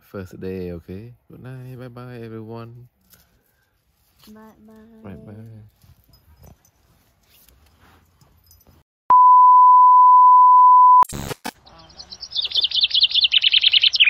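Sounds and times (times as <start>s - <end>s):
steady electronic beep: 9.1s - 11.1s
bird chirping rapidly: 11.6s - 14.0s.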